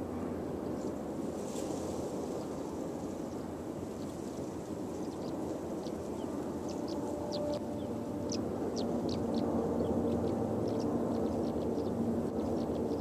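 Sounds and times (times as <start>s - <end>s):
distant diesel locomotives droning: 0.0s - 13.0s
small birds chirping: 3.3s - 13.0s
steady engine tones: 5.2s - 13.0s.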